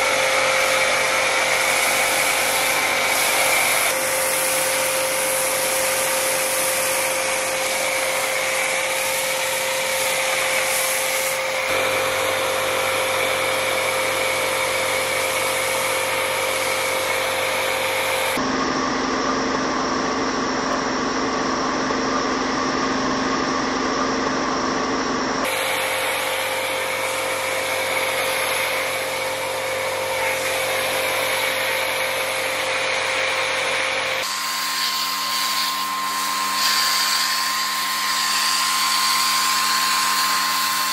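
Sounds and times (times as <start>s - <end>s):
foam cannon spraying hiss: 0.0s - 11.8s, 25.5s - 34.3s
pressure washer running: 0.0s - 22.4s, 23.4s - 40.9s.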